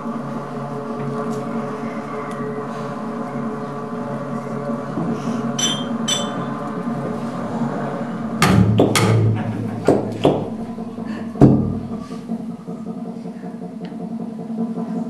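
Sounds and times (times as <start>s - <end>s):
deep low thud: 8.4s - 12.0s
loud sharp hits: 8.4s - 12.1s.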